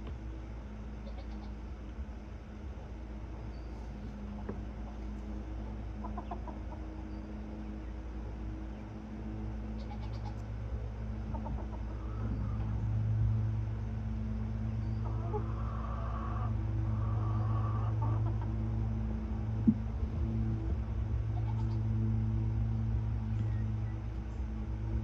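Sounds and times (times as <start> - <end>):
steady low hum: 0.0 - 25.0
hen clucking close: 1.0 - 1.6, 6.0 - 6.9, 9.8 - 10.4, 11.2 - 12.8, 15.0 - 18.6, 21.4 - 21.8
chickens clucking softly: 5.9 - 7.1, 11.2 - 12.8, 15.0 - 18.6
chicken ticks: 6.0 - 6.8, 11.3 - 11.9.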